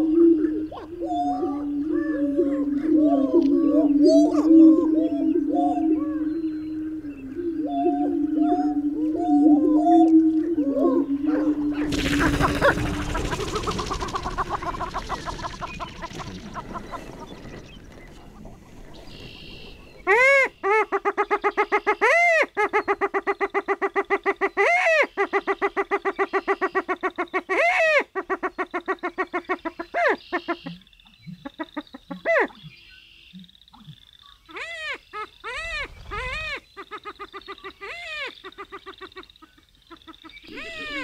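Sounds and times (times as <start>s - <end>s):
rattling bird chatter: 11.9s - 19.6s
rising and falling bird whoops: 40.5s - 41.0s.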